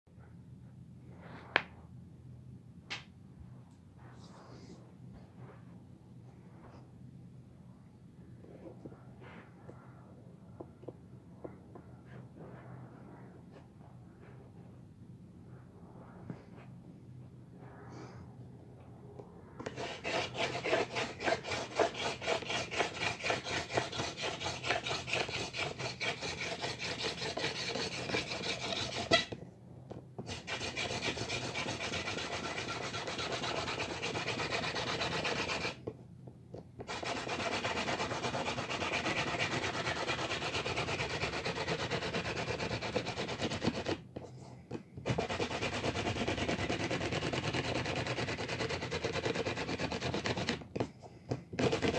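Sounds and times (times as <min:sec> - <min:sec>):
hand drill grinding rub on wood: 0:19.7 - 0:29.3, 0:30.3 - 0:35.8.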